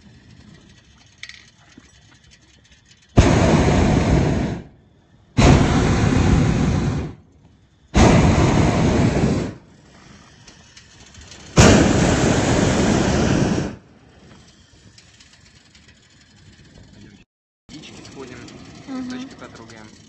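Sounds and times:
propane burner blasts: 0.0 - 20.0.

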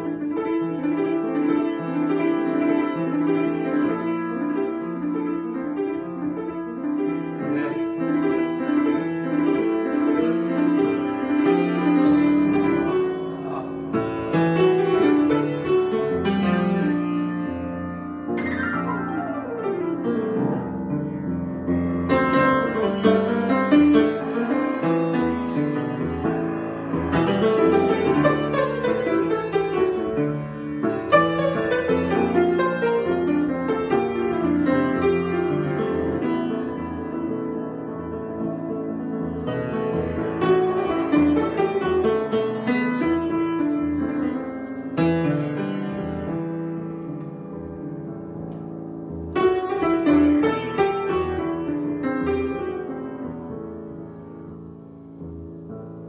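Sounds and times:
grand piano improvisation: 0.0 - 56.0.

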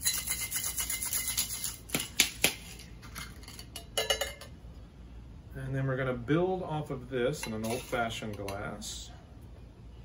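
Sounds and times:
ice rattling in cocktail shaker: 0.0 - 2.2.

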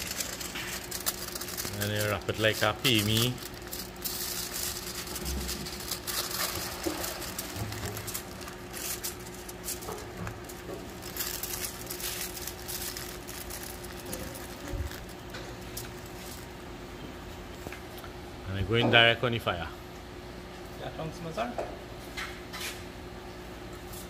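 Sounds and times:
aluminium foil crinkling: 0.0 - 16.8.

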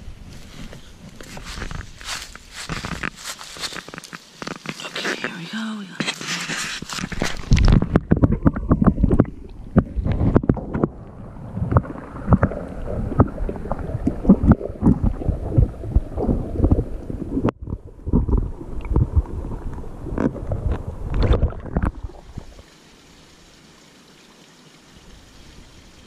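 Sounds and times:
muffled underwater water sloshing: 6.7 - 22.6.

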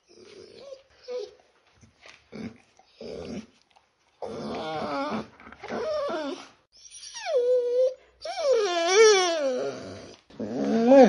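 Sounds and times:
puppy whining: 0.0 - 1.4, 4.2 - 11.0
puppy growly yowls: 7.2 - 11.0.

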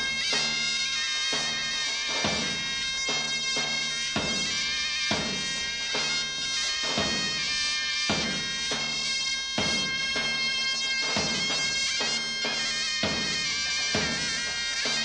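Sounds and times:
droning reed pipe melody: 0.0 - 15.0
drum beats: 0.0 - 15.0.

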